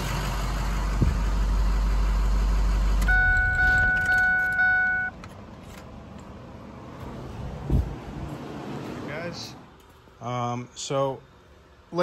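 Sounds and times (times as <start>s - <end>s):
diesel engine idling: 0.0s - 9.5s
dashboard warning chime: 3.0s - 5.2s.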